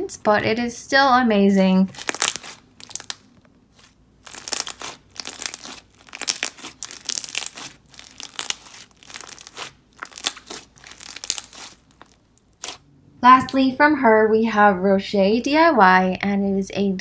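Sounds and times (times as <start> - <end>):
wet crackles and bubble pops: 1.9 - 3.4, 4.2 - 12.8
slime squeezed by hand: 1.9 - 12.8.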